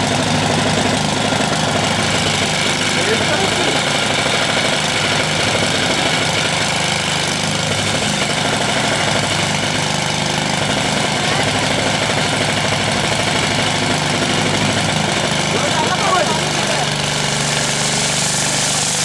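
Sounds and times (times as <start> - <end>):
small engine water pump running: 0.0 - 19.0.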